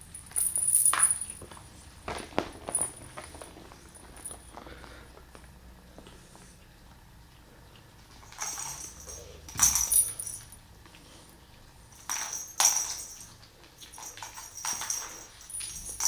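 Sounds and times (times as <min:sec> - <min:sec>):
jingling cat toy on hard floor: 0:00.0 - 0:01.4, 0:02.4 - 0:04.5, 0:08.2 - 0:10.6, 0:11.9 - 0:16.0.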